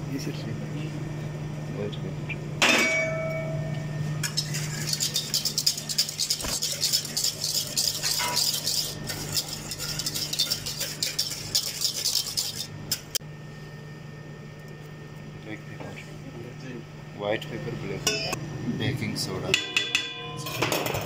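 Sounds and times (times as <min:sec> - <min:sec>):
utensil clanging against pot: 0:04.2 - 0:13.1
utensil stirring in metal saucepan: 0:04.2 - 0:13.2.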